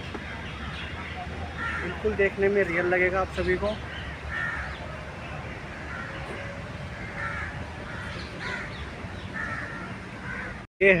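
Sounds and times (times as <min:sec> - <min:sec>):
low outdoor background noise: 0:00.0 - 0:11.0
crows cawing: 0:01.4 - 0:02.4, 0:03.8 - 0:05.0, 0:05.7 - 0:10.7.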